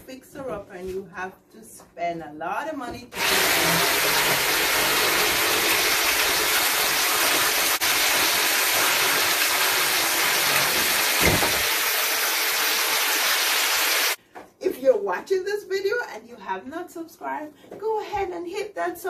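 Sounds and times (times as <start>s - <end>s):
power saw cutting: 3.2s - 14.2s.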